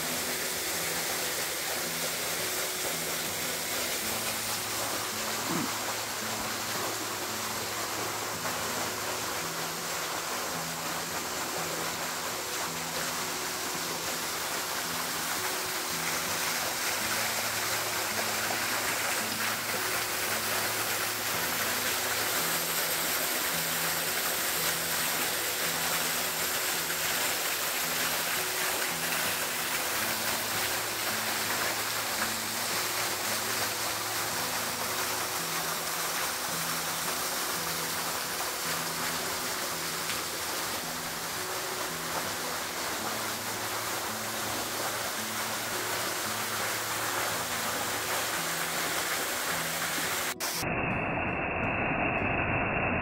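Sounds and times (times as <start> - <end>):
soft background music: 0.0 - 50.9
creek water and waterfall: 0.0 - 51.3.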